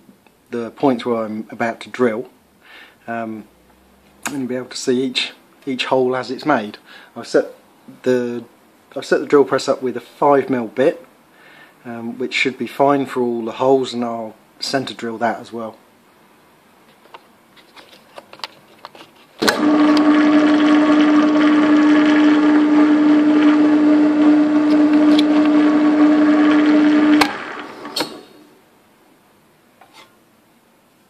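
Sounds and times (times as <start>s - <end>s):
drill motor humming: 19.4s - 28.3s
drill switch click: 27.1s - 28.2s.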